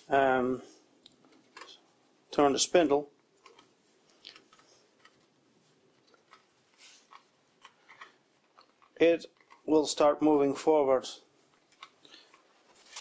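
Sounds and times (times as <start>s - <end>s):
faint metallic clicks and scraping: 3.2s - 9.7s, 11.4s - 13.0s.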